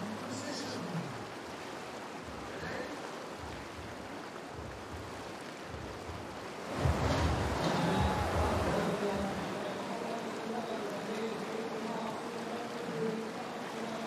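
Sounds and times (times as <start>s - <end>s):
whitewater rushing: 0.0s - 14.0s
wind buffeting microphone: 2.1s - 9.4s.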